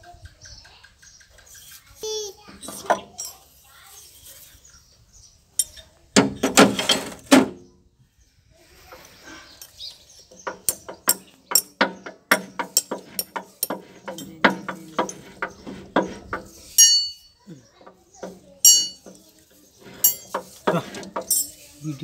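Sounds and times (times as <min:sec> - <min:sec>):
metal gear clinks: 0:02.6 - 0:03.6, 0:16.7 - 0:17.3, 0:18.6 - 0:19.2, 0:19.9 - 0:21.7.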